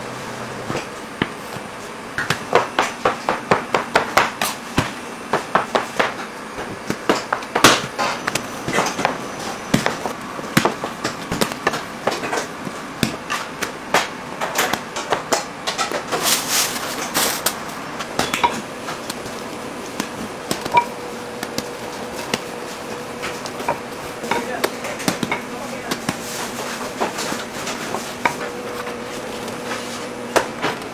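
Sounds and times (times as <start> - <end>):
dough scraping and handling: 14.6 - 30.9.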